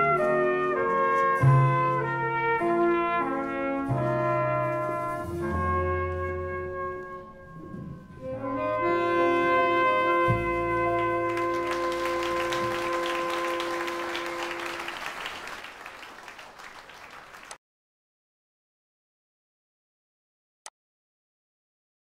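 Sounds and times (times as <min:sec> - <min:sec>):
brass and woodwind band chords: 0:00.0 - 0:15.6.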